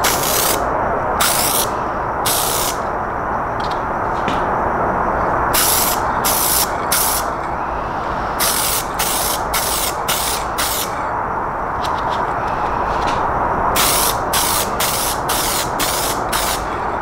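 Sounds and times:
aerosol can spraying: 1.2 - 1.7, 2.3 - 2.8, 8.4 - 10.9, 13.8 - 16.7.

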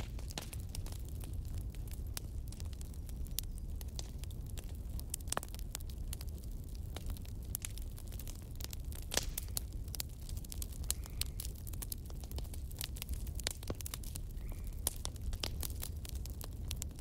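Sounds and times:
crackling clicks: 0.0 - 1.2, 8.6 - 11.4.

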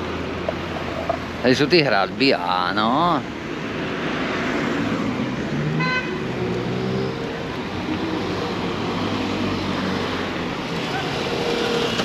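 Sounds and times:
car engines passing: 0.0 - 12.0
car horn beep: 5.8 - 6.2.

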